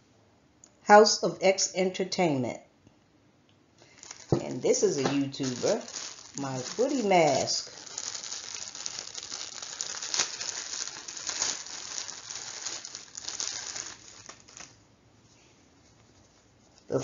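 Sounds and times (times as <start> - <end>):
plastic bag crinkling: 3.8 - 14.8.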